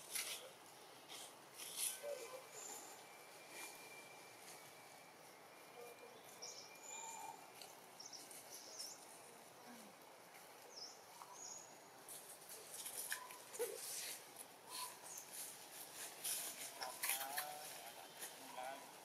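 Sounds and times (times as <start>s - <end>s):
dry leaves rustling: 12.0s - 19.0s.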